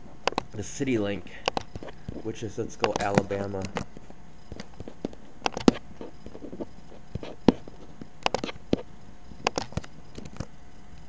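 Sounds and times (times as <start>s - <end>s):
mouse and keyboard clicking: 0.3s - 0.5s, 1.4s - 2.2s, 2.8s - 3.9s, 4.5s - 10.5s.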